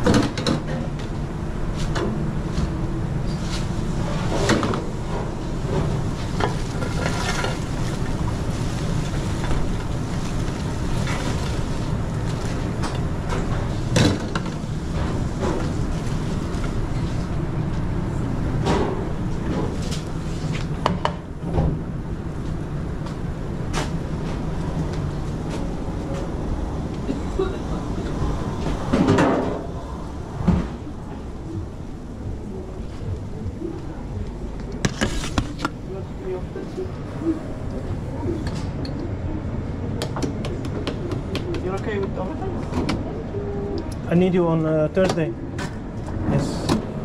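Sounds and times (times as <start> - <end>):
kitchen low drone: 0.0 - 47.0
pans and utensils clattering: 5.7 - 8.0.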